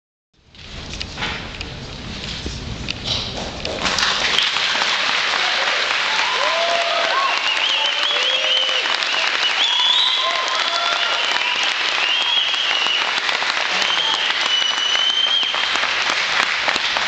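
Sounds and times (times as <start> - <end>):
crowd clapping: 3.7 - 17.0
crowd whooping and yelling: 5.3 - 15.8.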